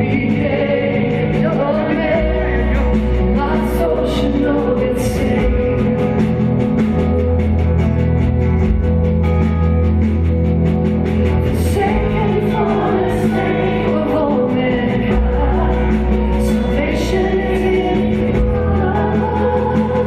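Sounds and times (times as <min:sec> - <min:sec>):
worship band playing: 0:00.0 - 0:20.0
voices singing: 0:11.5 - 0:20.0.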